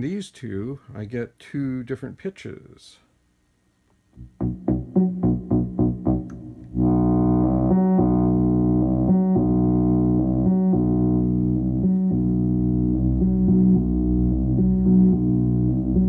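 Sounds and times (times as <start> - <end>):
synthesizer sequenced notes: 4.2 - 16.0.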